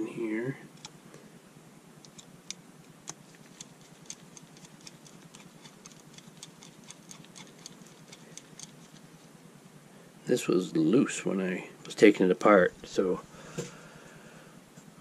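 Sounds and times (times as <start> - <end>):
screwdriver light ticks: 2.0 - 5.0.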